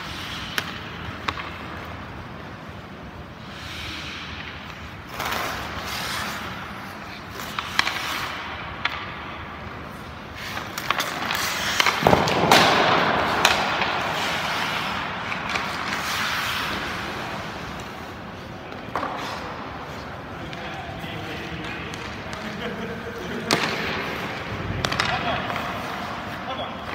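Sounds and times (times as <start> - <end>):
skates scraping on ice: 0.0 - 26.9
stick and puck clicks: 0.4 - 2.0.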